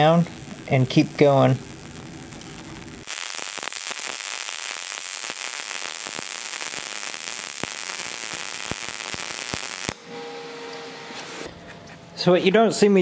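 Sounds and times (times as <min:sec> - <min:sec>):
welding arc hissing and crackling: 0:00.0 - 0:10.0.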